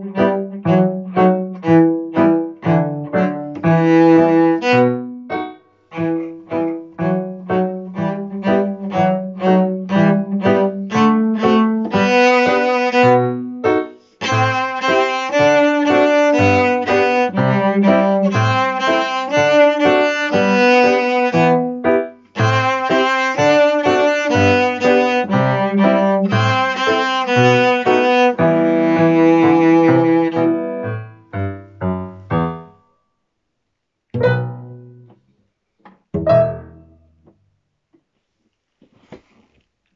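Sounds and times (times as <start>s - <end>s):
cello playing a march: 0.0s - 31.1s
piano accompaniment: 0.0s - 32.9s, 34.2s - 37.4s.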